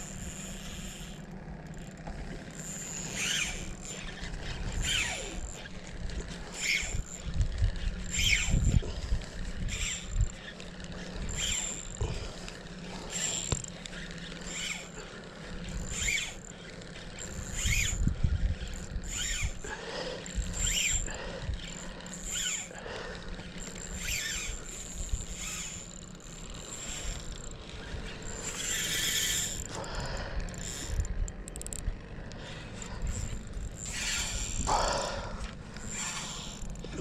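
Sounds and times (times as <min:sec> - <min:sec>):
fishing reel gear whir: 0:00.0 - 0:37.0
wind rumbling on microphone: 0:05.9 - 0:10.5, 0:17.3 - 0:19.7.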